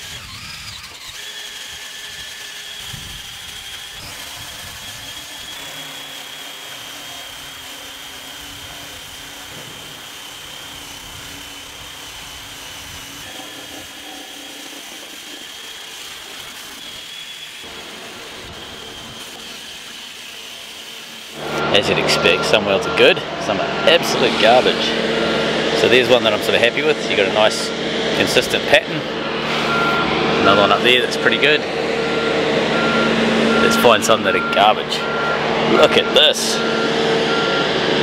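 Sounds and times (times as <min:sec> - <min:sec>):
wire wheel scratching metal: 0:00.0 - 0:37.6
drill motor whine: 0:00.0 - 0:38.0.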